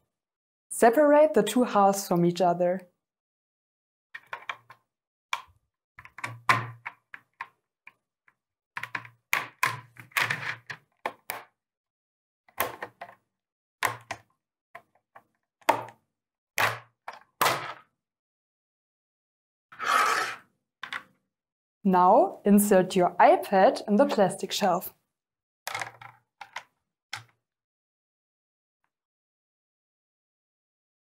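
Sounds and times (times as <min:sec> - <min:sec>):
plastic parts knocking on table: 0:05.4 - 0:07.6, 0:13.8 - 0:14.2, 0:15.6 - 0:16.0, 0:25.7 - 0:27.3.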